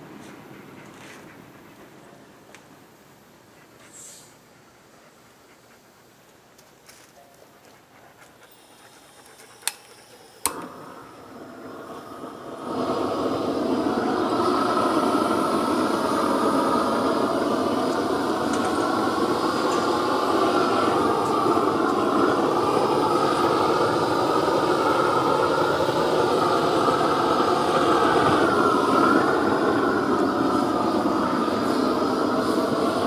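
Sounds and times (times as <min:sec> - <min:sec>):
propane torch roaring: 0:08.4 - 0:33.0.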